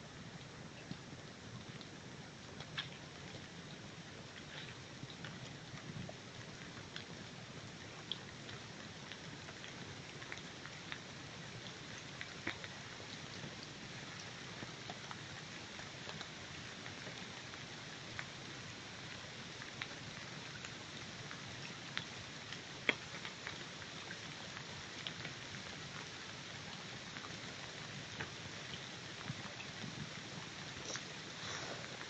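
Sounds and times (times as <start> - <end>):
light ticks and crackles: 0.0 - 32.0.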